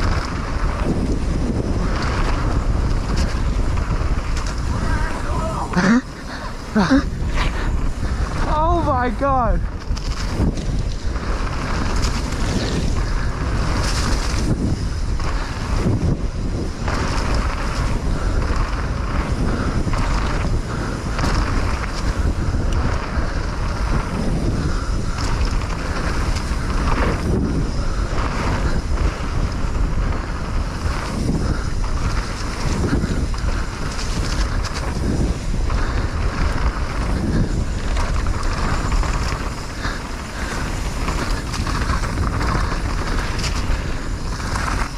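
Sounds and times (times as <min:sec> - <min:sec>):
bike rumbling and rattling on dirt: 0:00.0 - 0:44.9
wind buffeting microphone: 0:00.0 - 0:44.9.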